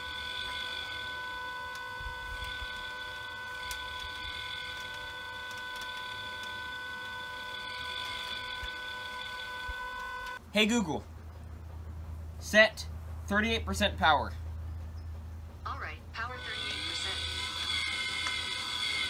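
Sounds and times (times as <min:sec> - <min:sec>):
small electric motor whine: 0:00.0 - 0:10.4, 0:16.3 - 0:19.0.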